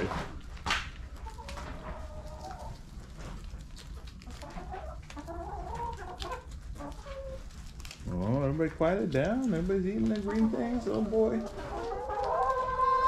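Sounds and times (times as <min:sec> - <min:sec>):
hens clucking: 0:00.4 - 0:13.0.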